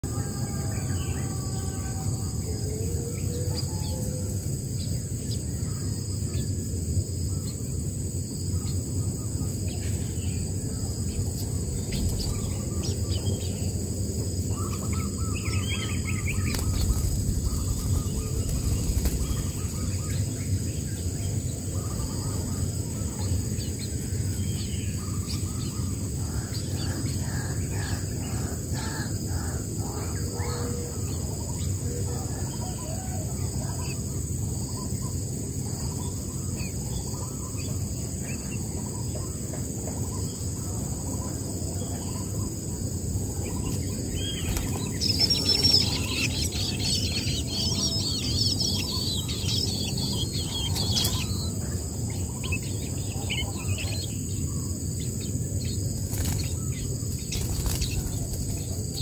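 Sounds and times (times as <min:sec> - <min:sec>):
low outdoor rumble: 0:02.0 - 0:30.2
bird calls: 0:08.5 - 0:59.0.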